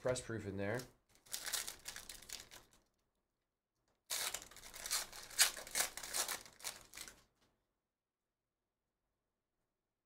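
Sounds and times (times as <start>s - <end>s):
foil wrapper crinkling and tearing: 0.7s - 2.9s, 4.0s - 7.3s.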